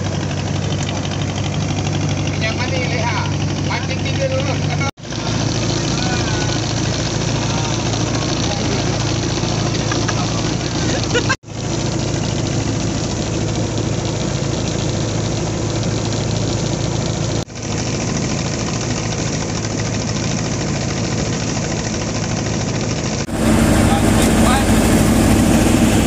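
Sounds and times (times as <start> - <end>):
boat engine running: 0.0 - 26.0.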